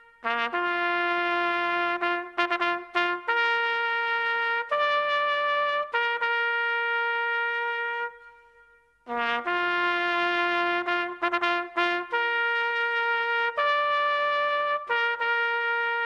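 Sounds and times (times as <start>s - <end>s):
solo bugle call: 0.0s - 16.0s.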